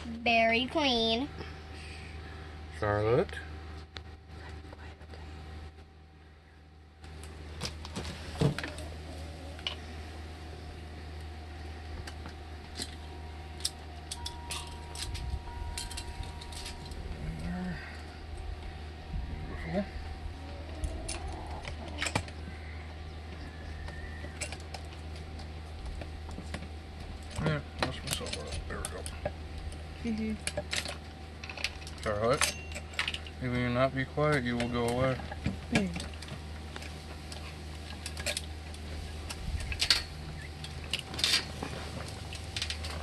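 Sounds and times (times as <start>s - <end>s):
saw chain links clinking: 13.6s - 17.0s
saw chain clinking: 32.3s - 33.3s.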